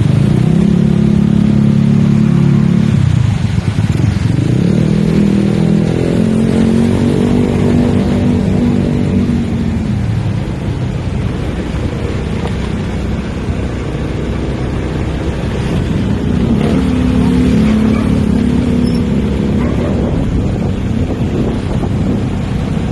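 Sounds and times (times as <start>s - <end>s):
road noise: 0.0s - 22.9s
wind rushing on microphone: 14.6s - 22.9s.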